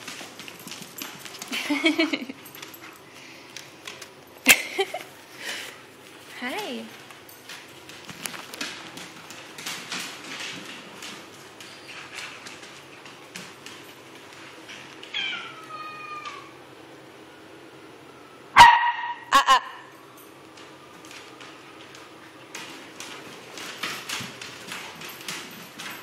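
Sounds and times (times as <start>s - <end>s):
puppy paws clicking: 0.0s - 5.1s, 6.0s - 16.4s, 20.2s - 26.0s
puppy barking: 18.6s - 19.8s.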